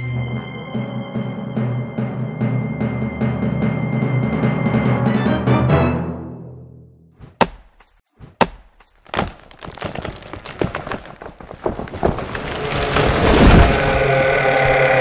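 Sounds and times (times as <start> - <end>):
axe chopping wood: 7.2 - 12.9
wood cracking and splintering: 8.4 - 15.0.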